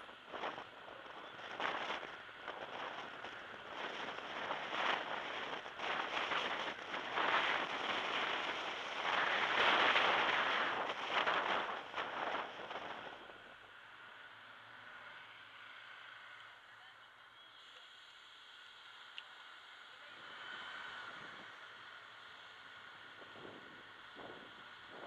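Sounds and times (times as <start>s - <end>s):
wind rushing over microphone: 0.0s - 13.8s, 20.3s - 22.0s, 22.8s - 25.0s
car road noise: 0.0s - 16.8s, 17.6s - 25.0s.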